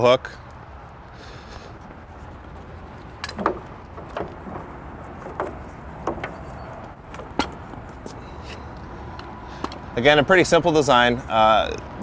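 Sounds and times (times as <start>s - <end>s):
metal hook clanking: 3.2s - 4.6s.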